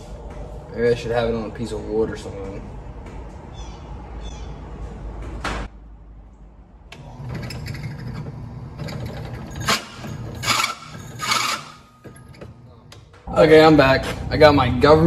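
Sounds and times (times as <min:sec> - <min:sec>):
drill bit grinding steel: 0:07.5 - 0:11.9.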